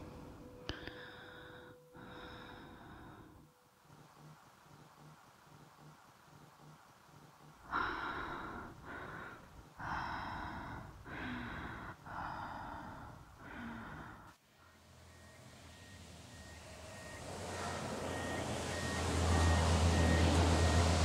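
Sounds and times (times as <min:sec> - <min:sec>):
harsh heavy breathing: 0:07.6 - 0:14.4.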